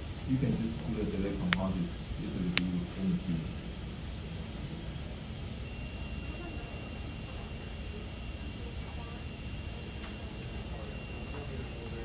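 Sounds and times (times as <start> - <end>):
steady background hiss: 0.0 - 5.8
faint high steady tone: 4.9 - 12.0.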